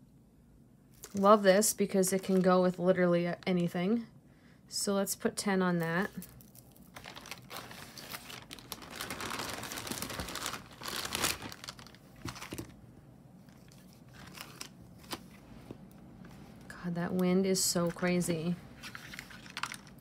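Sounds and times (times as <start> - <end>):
packaging crinkling: 5.8 - 12.8, 13.5 - 15.4.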